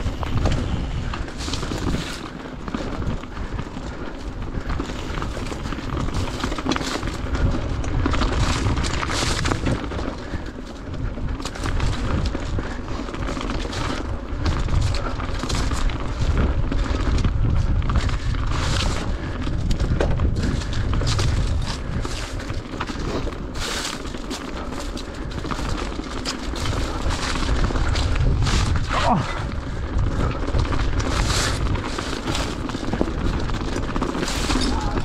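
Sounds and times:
bike tyres clattering over stones: 0.0s - 35.0s
wind rumble on microphone: 0.0s - 35.0s.

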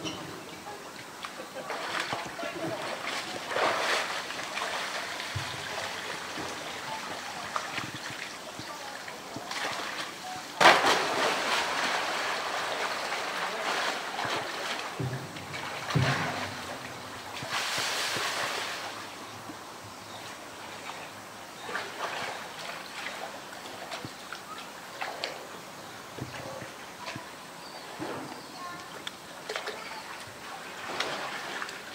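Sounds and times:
water splashing: 0.0s - 19.2s, 29.0s - 31.9s
water sloshing and lapping: 0.0s - 19.6s, 20.2s - 28.1s, 28.7s - 31.9s.

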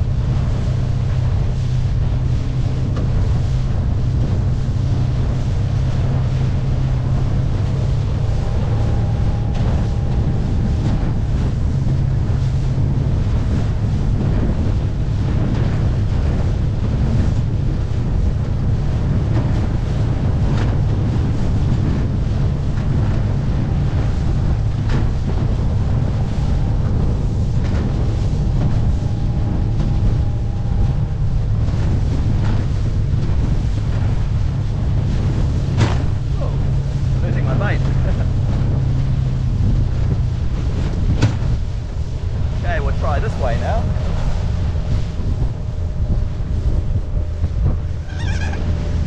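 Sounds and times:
outboard motor running: 0.0s - 49.0s
water slapping against hull: 0.0s - 49.0s
wind buffeting microphone: 0.0s - 49.0s.

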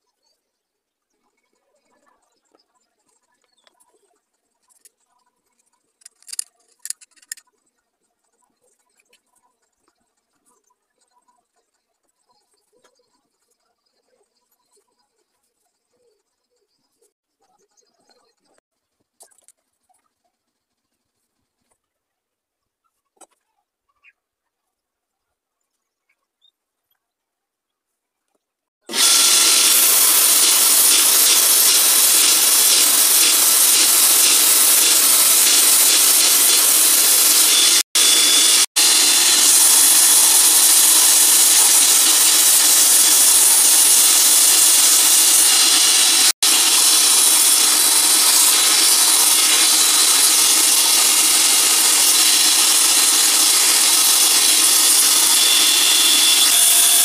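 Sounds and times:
belt grinder sanding wood: 28.8s - 57.0s.

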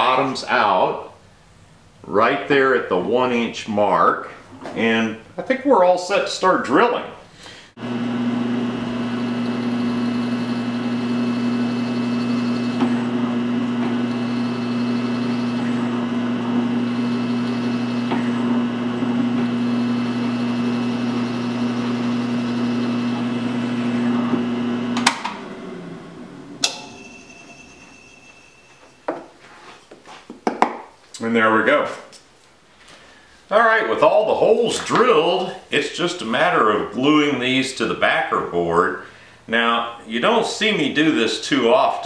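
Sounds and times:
drill bit cutting wood: 7.8s - 25.4s
drill press motor humming: 7.8s - 27.0s.

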